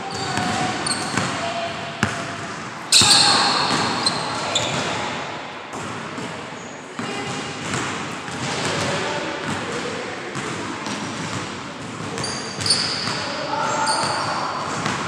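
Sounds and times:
basketball bouncing on hardwood floor: 3.0s - 4.9s.

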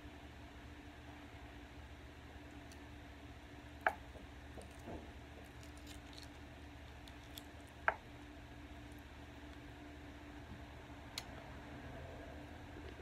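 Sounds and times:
crab shells cracking: 3.8s - 8.3s.

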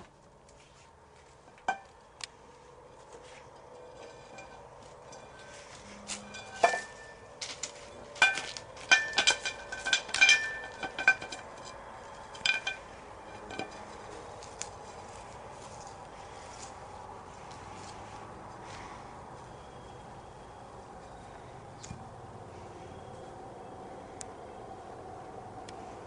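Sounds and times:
metallic clinks and jingles: 3.8s - 14.6s.

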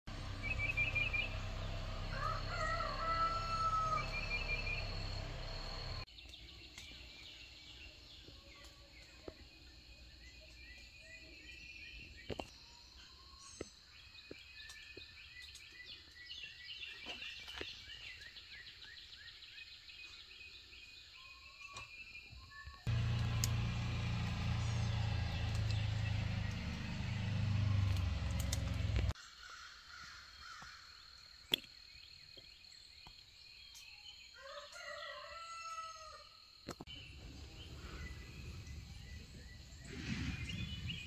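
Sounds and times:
birds chirping and singing: 0.1s - 30.8s, 36.9s - 41.0s
sharp clicks: 23.0s - 24.4s, 27.8s - 29.2s.

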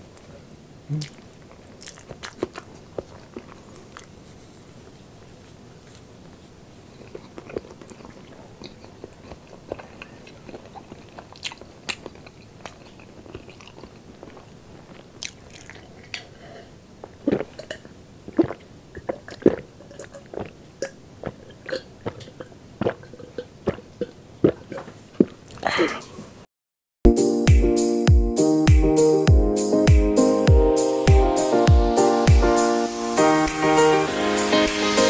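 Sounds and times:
chewing clicks and lip smacks: 0.9s - 4.1s, 7.0s - 16.3s
gulping a drink: 0.9s - 4.1s, 15.2s - 26.1s.

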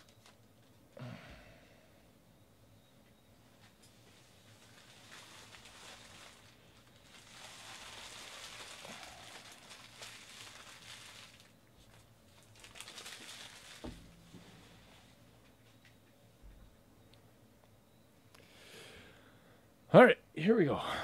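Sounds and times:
foil wrappers crinkling: 0.0s - 0.8s, 3.9s - 15.2s.

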